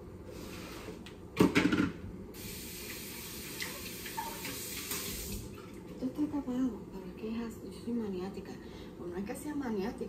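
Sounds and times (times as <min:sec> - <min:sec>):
kitchen clatter: 0:01.4 - 0:02.0
water running from tap: 0:02.4 - 0:05.6.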